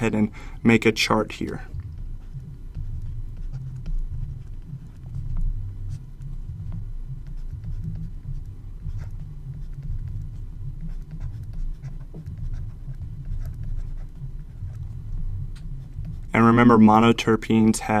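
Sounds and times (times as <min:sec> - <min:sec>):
stylus scratching on tablet: 0:00.0 - 0:18.0.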